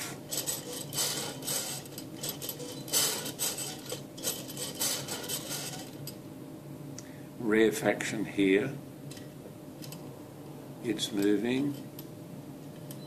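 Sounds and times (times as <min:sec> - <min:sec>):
crank mechanism clicking and scraping: 0:00.0 - 0:06.2.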